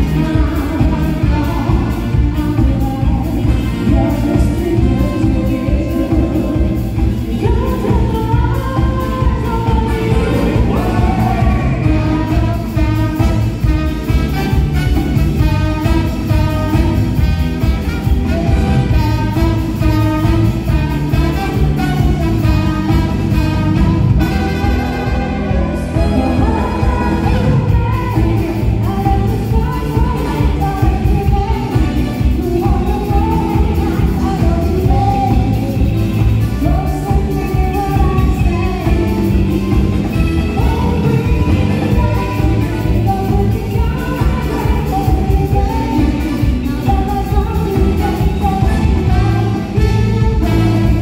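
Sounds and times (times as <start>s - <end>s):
live band playing: 0.0s - 51.0s.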